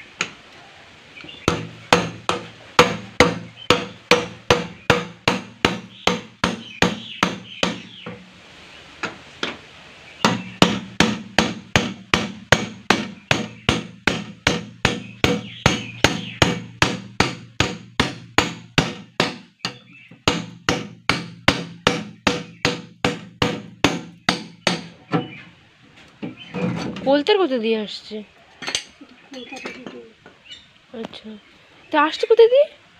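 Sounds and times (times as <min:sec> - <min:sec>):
hammer striking metal: 0:01.5 - 0:08.2, 0:10.2 - 0:25.2.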